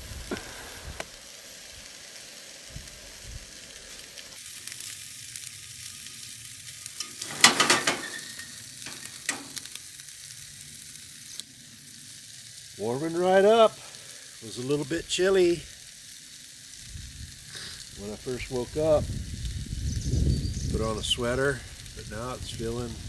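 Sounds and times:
sausages sizzling in a frying pan: 0.0 - 23.0
utensil scraping a pan: 7.0 - 9.6.

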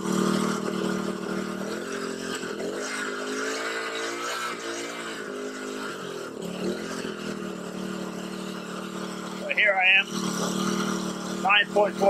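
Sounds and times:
small petrol engine revving: 0.0 - 12.0.

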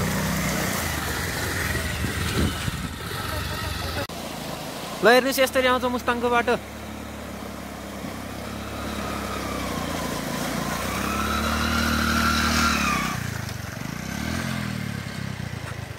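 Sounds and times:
small motorcycle engine: 0.0 - 15.9
river water rushing: 4.1 - 13.4.

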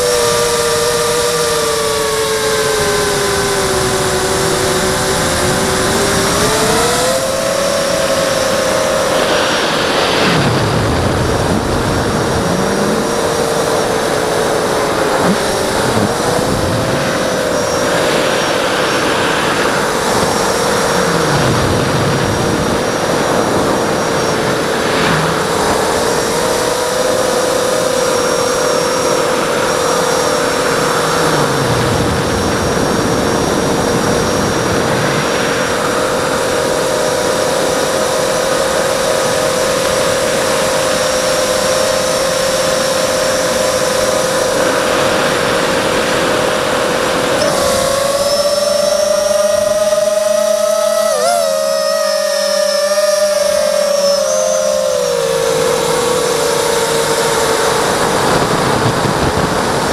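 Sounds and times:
drone motors whining: 0.0 - 59.9
rushing air: 4.1 - 37.7.

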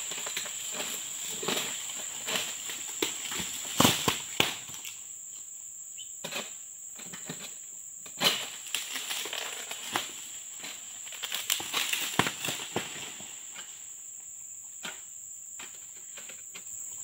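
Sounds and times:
sickle knocking palm fronds: 0.0 - 4.9, 8.1 - 13.7
high insect drone: 0.0 - 17.0.

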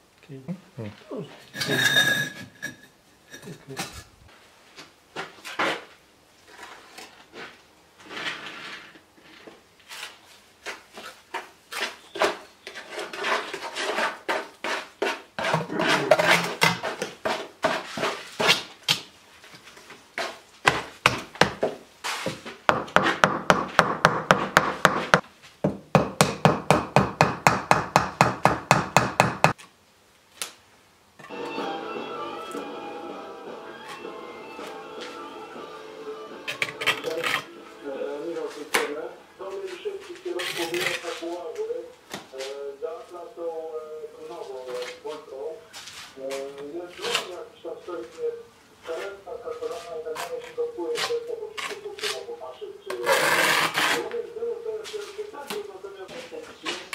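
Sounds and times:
bricks knocking and scraping: 11.4 - 18.7, 20.2 - 29.6.

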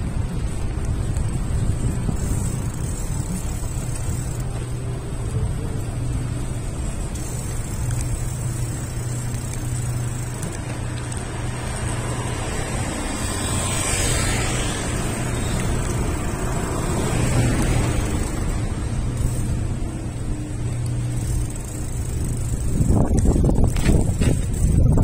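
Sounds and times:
road traffic rumble: 0.0 - 25.0
vehicle passing close by: 10.0 - 20.4.

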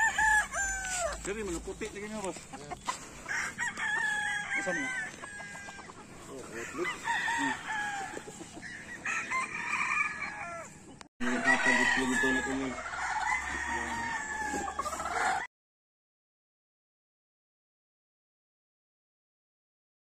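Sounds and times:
roosters crowing: 0.0 - 15.5.

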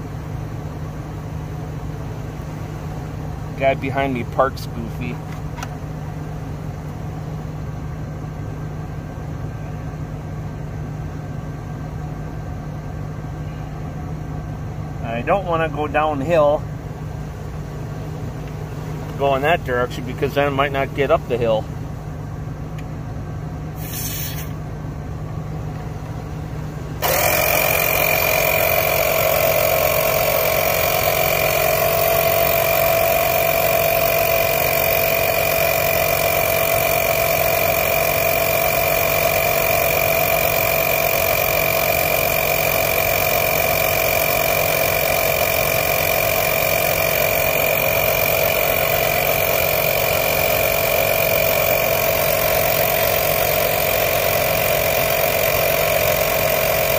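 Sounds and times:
air compressor whining: 0.0 - 8.5, 12.8 - 56.9
brief hiss: 23.8 - 24.6.

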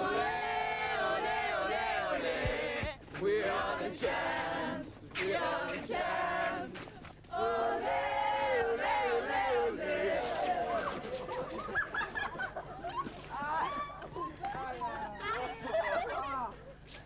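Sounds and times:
young voices singing together: 0.0 - 11.3.

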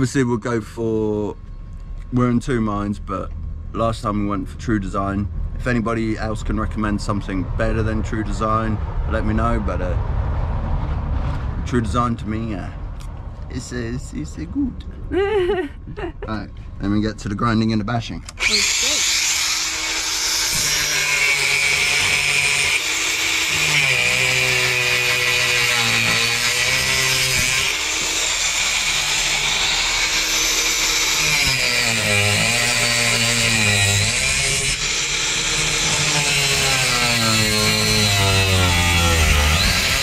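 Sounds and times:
angle grinder grinding fibreglass: 18.3 - 40.0.

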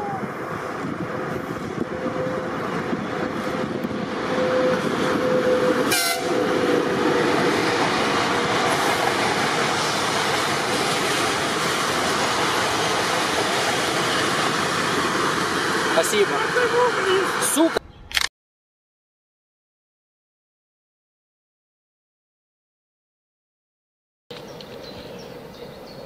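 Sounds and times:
train passing: 0.0 - 17.8.

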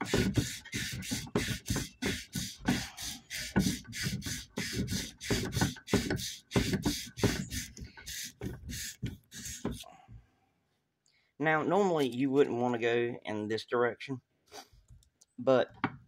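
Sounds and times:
hand sanding metal: 0.0 - 9.9.

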